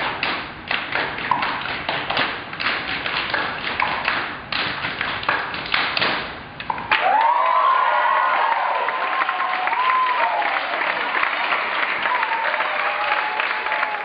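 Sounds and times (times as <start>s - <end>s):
group clapping hands: 0.1s - 14.0s
crowd cheering: 6.9s - 14.0s.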